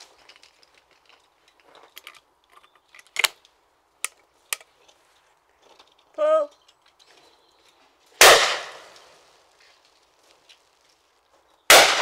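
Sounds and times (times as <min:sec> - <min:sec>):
shotgun metallic clicks: 0:01.9 - 0:04.7.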